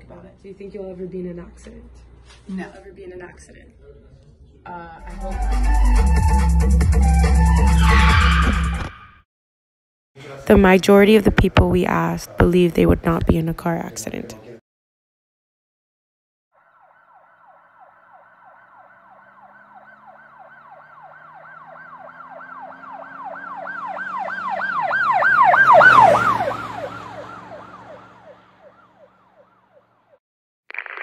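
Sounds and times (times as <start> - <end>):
emergency siren yelping: 5.5 - 9.2, 16.6 - 30.1.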